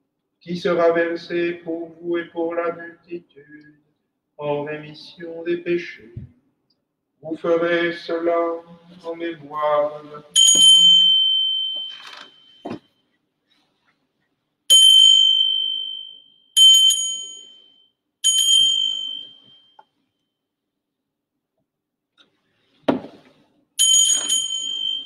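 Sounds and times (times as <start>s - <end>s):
altar bell ringing: 10.4s - 12.6s, 14.7s - 19.8s, 23.8s - 25.0s.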